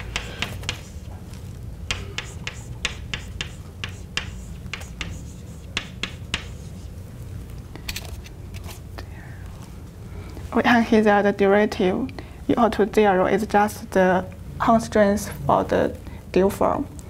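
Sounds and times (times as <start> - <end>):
chalk tapping on blackboard: 0.0 - 1.2, 1.9 - 6.9.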